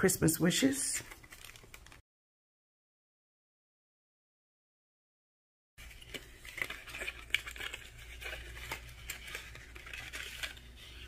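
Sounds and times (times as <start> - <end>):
cellophane wrapper crinkling: 0.9 - 2.0, 5.8 - 11.0.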